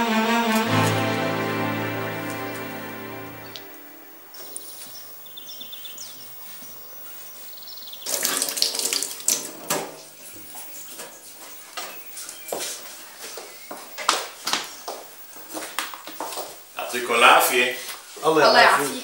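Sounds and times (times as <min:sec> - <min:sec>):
tap water running into sink: 0:08.1 - 0:09.6.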